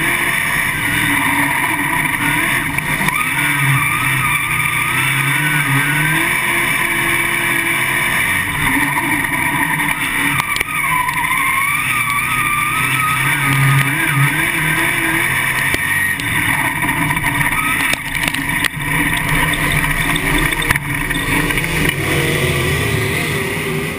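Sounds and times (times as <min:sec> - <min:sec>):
race car engine running: 0:00.0 - 0:23.9
wind and chassis noise: 0:00.0 - 0:23.9
chassis knocks: 0:15.6 - 0:22.3.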